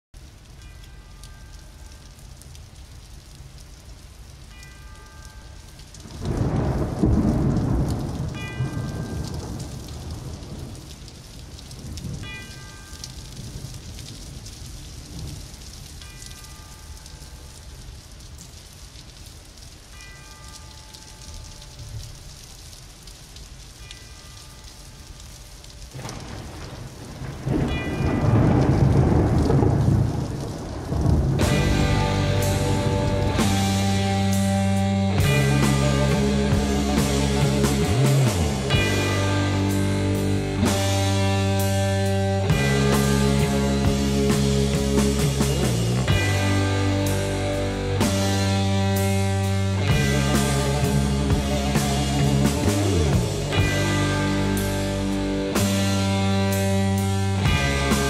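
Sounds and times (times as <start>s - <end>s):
rain patter: 0.0s - 58.0s
thunder rumble: 5.0s - 16.1s, 25.8s - 58.0s.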